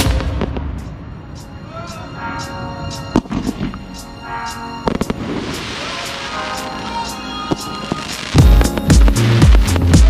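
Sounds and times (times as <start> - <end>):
music with sustained tones: 0.0 - 10.0
firework shells bursting: 3.0 - 6.6.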